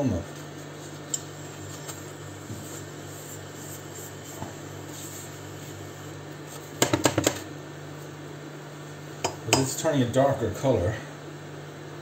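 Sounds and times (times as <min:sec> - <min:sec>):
spatula stirring spices in pan: 0:01.3 - 0:06.0
spatula knocking against pan: 0:06.8 - 0:07.4.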